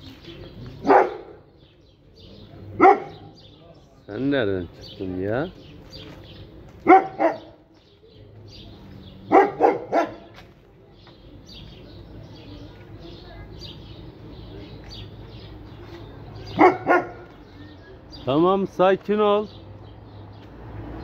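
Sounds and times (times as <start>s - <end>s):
dog barking: 0.8s - 1.5s, 2.8s - 3.4s, 6.8s - 7.6s, 9.3s - 10.4s, 16.5s - 17.4s.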